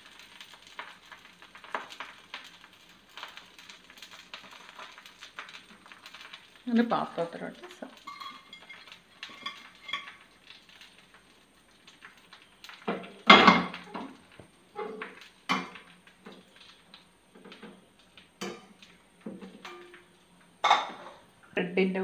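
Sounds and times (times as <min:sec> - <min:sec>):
metal skimmer clinking on plate: 0:08.1 - 0:10.1.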